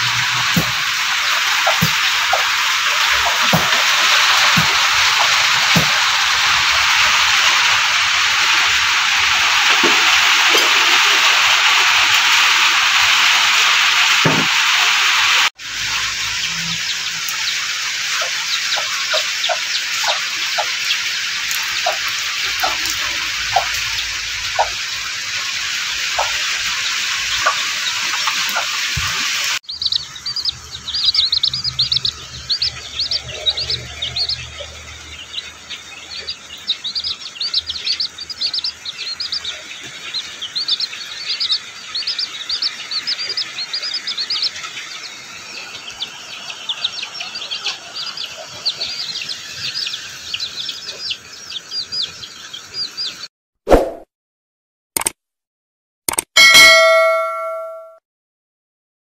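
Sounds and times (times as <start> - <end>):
chicks peeping: 0.0 - 12.4, 15.3 - 53.3
rain hiss: 0.0 - 52.9.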